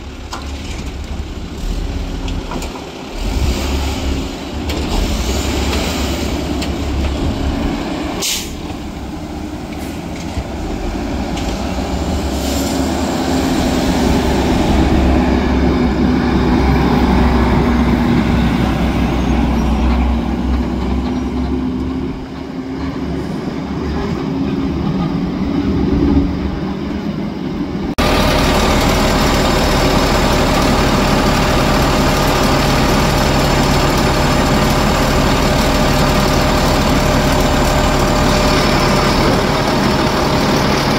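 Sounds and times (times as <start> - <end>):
garbage truck engine running: 0.0 - 23.2, 28.0 - 40.9
garbage truck engine idling: 28.0 - 40.9.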